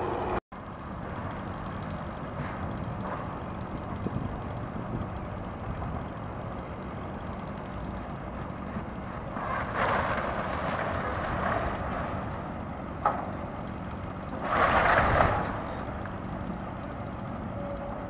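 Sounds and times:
excavator engine rumble: 0.0s - 18.0s
debris crunching and breaking: 9.4s - 12.3s.

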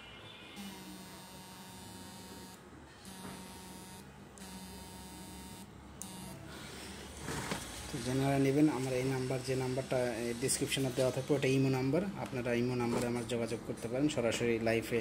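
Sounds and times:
inverter transformer humming: 0.0s - 12.8s.

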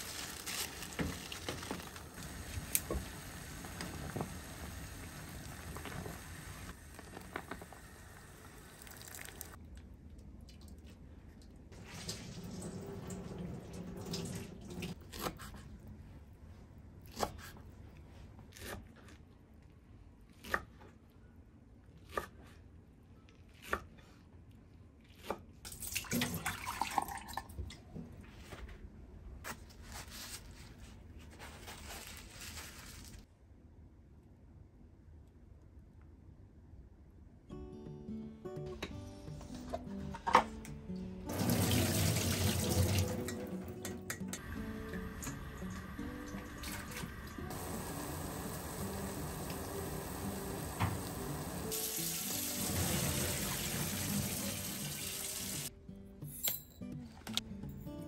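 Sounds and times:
rustling: 0.0s - 2.3s, 29.5s - 33.3s.

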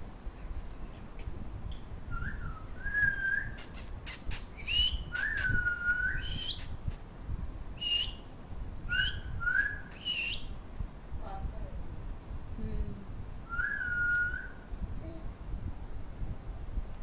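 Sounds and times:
person whistling short notes: 2.2s - 6.7s.

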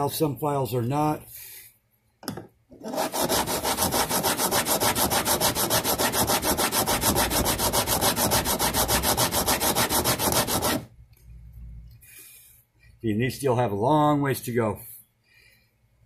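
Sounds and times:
file rasping on metal: 2.8s - 10.9s.

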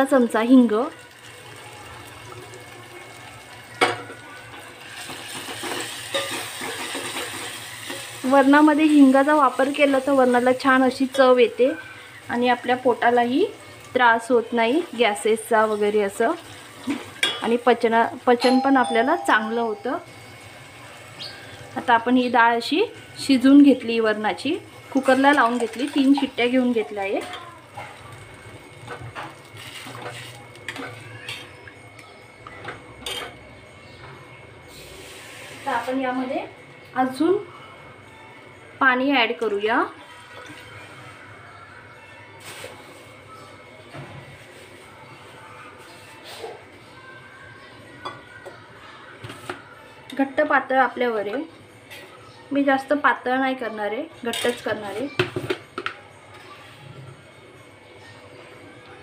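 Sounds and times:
sauce sizzling and crackling: 0.7s - 17.2s, 27.9s - 31.1s.

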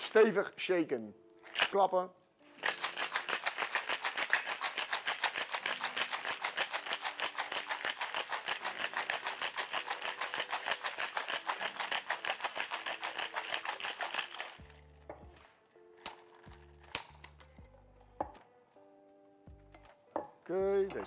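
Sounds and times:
ice rattling in cocktail shaker: 1.4s - 1.9s, 2.5s - 14.8s.

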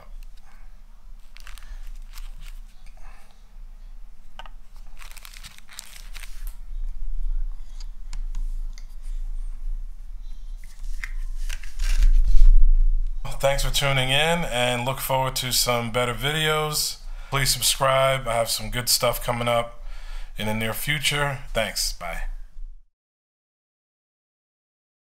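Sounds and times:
plastic packaging crinkling: 1.2s - 2.9s, 4.6s - 6.6s, 10.6s - 12.6s.

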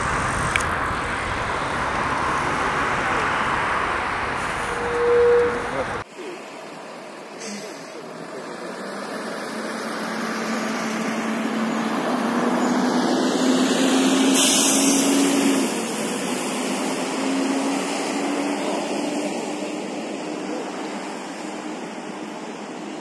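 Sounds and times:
vehicle engine drone: 0.0s - 23.0s
brief hiss: 14.4s - 15.2s.

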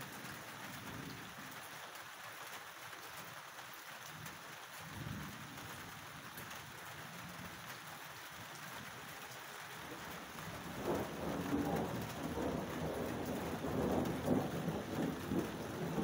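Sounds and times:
steady rain: 0.0s - 16.0s
thunder rumbling: 9.9s - 16.0s.

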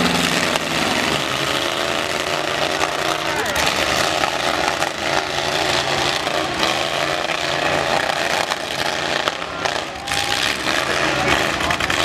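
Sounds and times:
truck engines revving: 0.0s - 12.0s.

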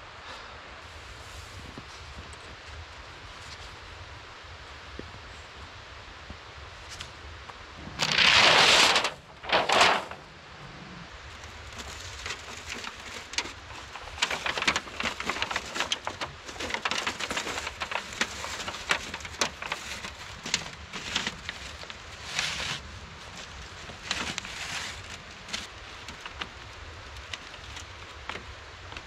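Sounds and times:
wooden pole crackling in snow: 7.8s - 10.3s, 11.2s - 29.0s
loud rushing noises: 7.8s - 11.0s.

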